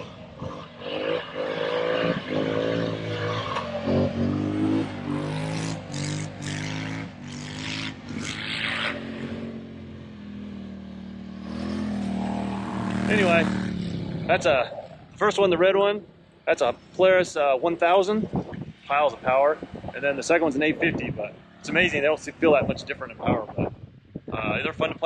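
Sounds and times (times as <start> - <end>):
quad bike engine revving: 0.0 - 15.6.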